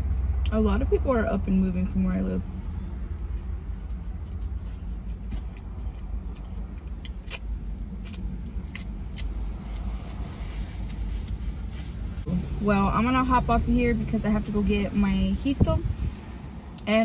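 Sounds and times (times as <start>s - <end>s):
steady low rumble: 0.0s - 17.0s
person chewing: 3.3s - 9.4s.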